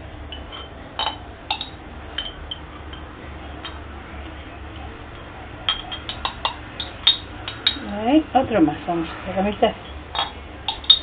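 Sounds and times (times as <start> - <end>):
metal spoon clinking on glass jars: 10.2 - 11.0.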